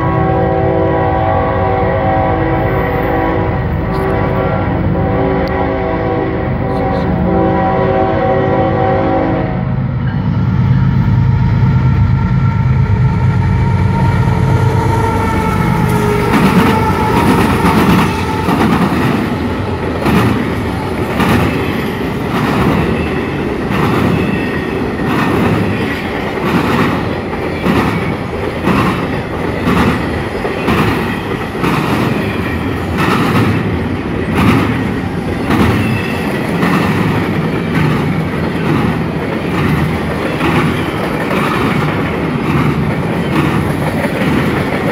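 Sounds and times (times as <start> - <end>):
diesel locomotive engine drone: 0.0 - 44.9
freight cars rumbling: 9.6 - 44.9
train wheels clacking: 13.7 - 44.9.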